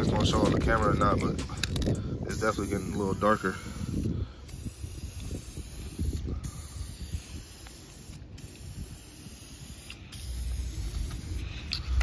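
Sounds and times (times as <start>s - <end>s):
aerosol spray can hissing: 2.4s - 12.0s.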